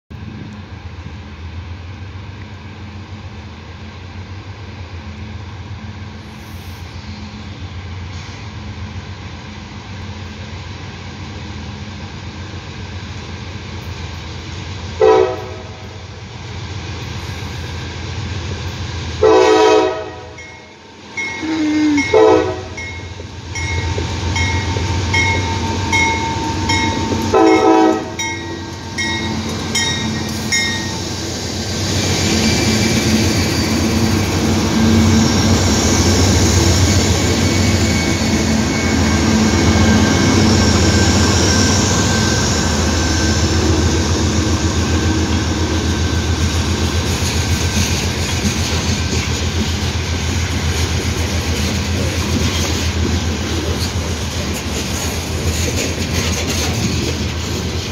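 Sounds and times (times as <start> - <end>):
diesel locomotive rumble: 0.1 - 57.9
locomotive horn blasts: 15.0 - 16.0, 19.2 - 20.5, 21.3 - 22.9, 25.9 - 28.3
steel wheels on rails: 19.9 - 57.9.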